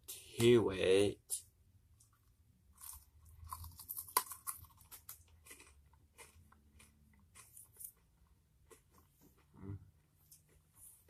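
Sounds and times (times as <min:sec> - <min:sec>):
crunching candy: 0:02.0 - 0:09.5.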